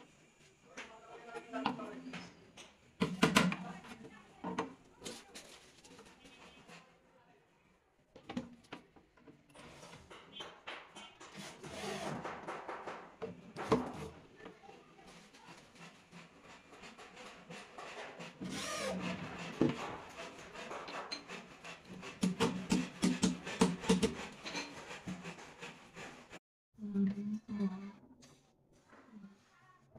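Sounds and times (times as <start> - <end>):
cordless drill driving screws: 18.4 - 19.2.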